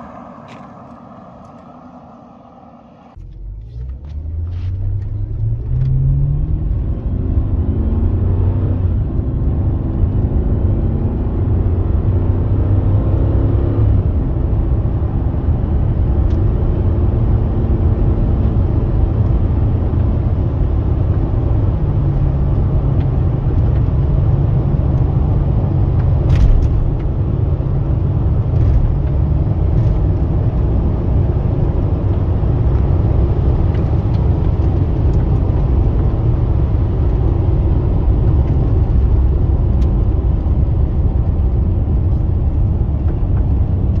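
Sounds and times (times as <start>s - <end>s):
car engine and road rumble: 0.0s - 44.0s.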